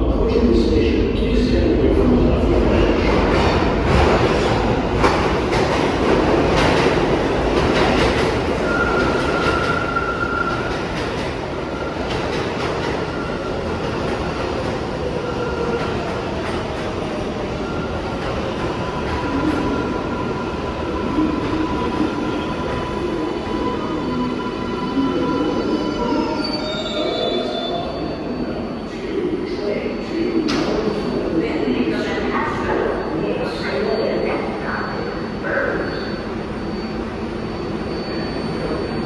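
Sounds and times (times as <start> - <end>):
high wheel squeal: 23.5 - 29.0, 34.0 - 39.0.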